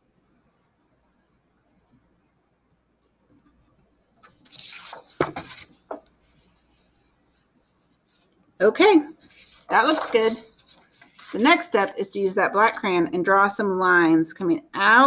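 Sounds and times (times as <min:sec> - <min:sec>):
crayon scratching on paper: 0:03.0 - 0:08.0, 0:08.8 - 0:11.7
cardstock sliding and rustling: 0:04.3 - 0:06.0, 0:09.1 - 0:11.4.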